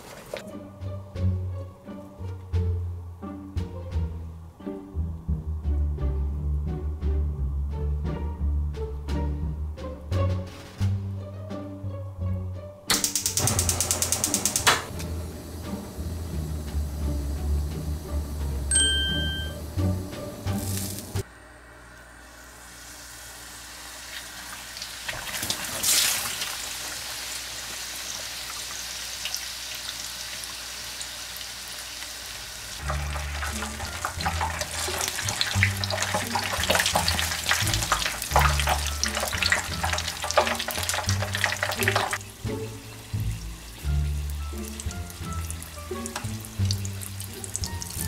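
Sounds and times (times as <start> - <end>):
hot oil sizzling and crackling: 13.0 - 21.3, 22.4 - 48.0.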